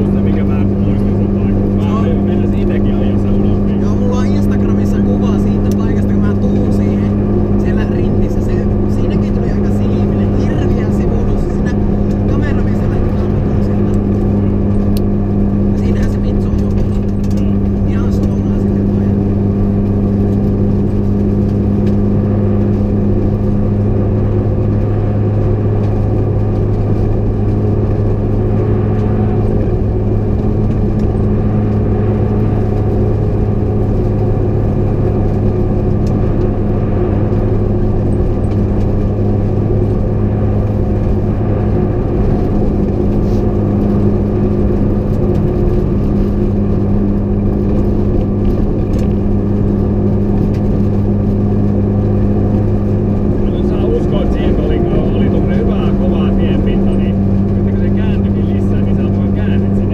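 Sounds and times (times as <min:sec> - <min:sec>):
car engine droning: 0:00.0 - 0:59.9
tyre and road noise on snow: 0:00.0 - 0:59.9.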